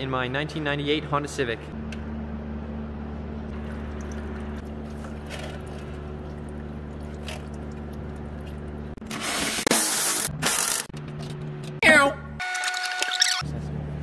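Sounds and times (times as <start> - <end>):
coolant draining into plastic bowl: 3.5 - 8.7.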